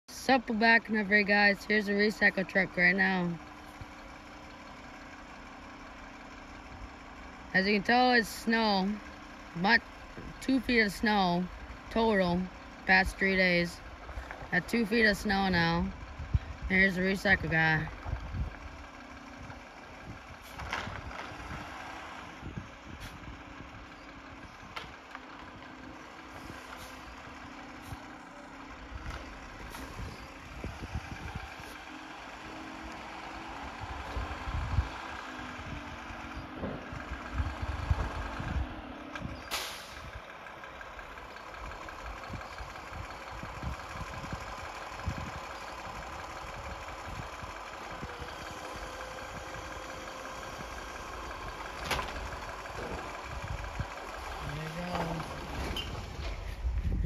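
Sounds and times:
truck engine running: 0.0 - 57.0
hydraulic arm lifting carts: 18.0 - 57.0.

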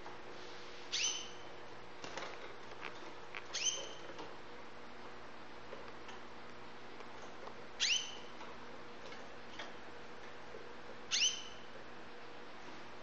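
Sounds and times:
canary chirping: 0.9 - 1.5, 3.4 - 4.2, 7.8 - 8.4, 11.1 - 11.7.

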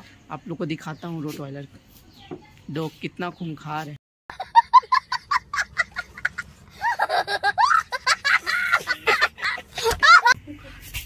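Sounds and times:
boy laughing hysterically: 4.3 - 10.5.

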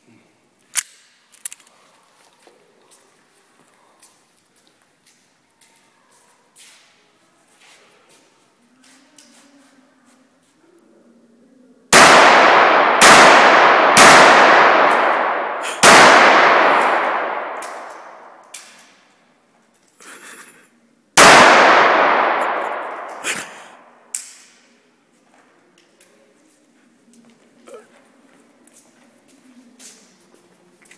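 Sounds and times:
revolver shots echoing: 12.0 - 19.0, 21.2 - 24.1.

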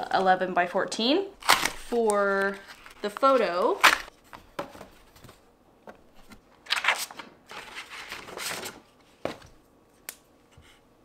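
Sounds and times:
paper and cardboard rustling: 1.7 - 9.6.

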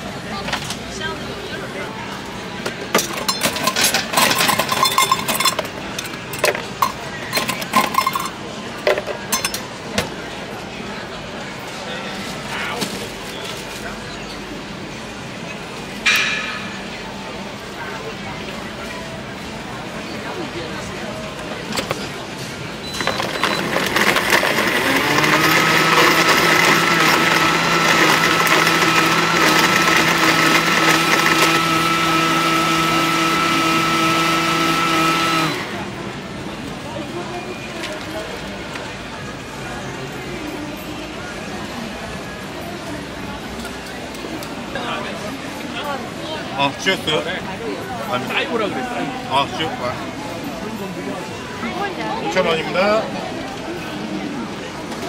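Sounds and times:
ice clinking against metal cup: 3.0 - 9.7
blender motor humming: 23.0 - 35.9.

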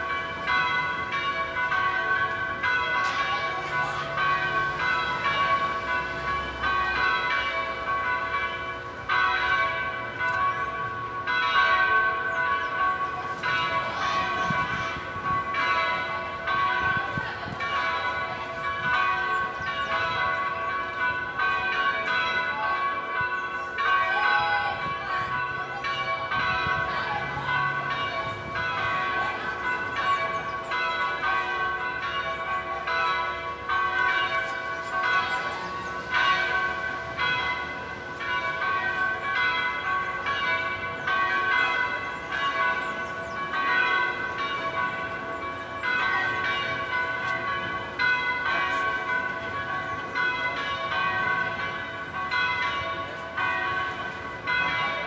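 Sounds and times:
church bells ringing: 0.0 - 55.0.

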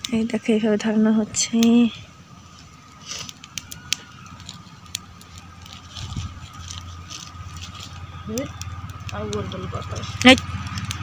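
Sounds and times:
fire crackling and snapping: 0.0 - 11.0
wind rumble on microphone: 3.5 - 11.0.

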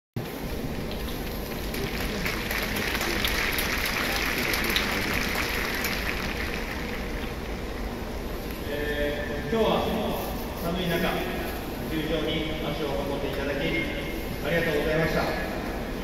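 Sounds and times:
stadium crowd clapping: 0.4 - 8.2.

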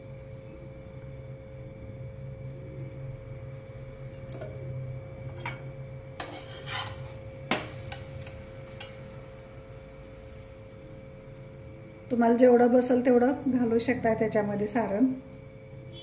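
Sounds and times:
steady hum: 0.0 - 16.0
steel spatula scraping a griddle: 6.2 - 8.0.

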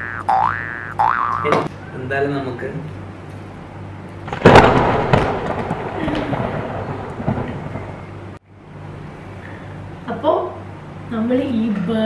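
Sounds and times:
thunderclap with rolling rumble: 4.3 - 8.4.

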